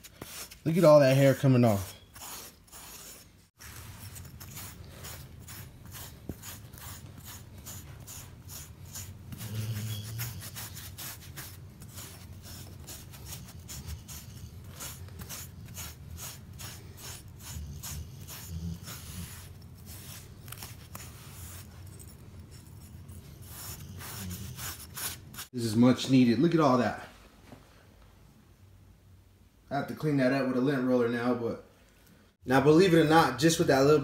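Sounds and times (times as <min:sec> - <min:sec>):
brick rasping through dog fur: 0:01.9 - 0:25.5.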